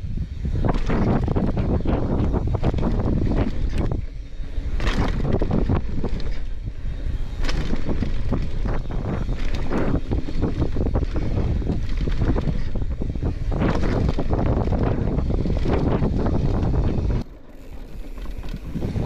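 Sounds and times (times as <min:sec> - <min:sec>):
bike rattling: 0:00.0 - 0:19.0
wind buffeting microphone: 0:00.0 - 0:19.0
bike landing clatter: 0:07.4 - 0:12.8.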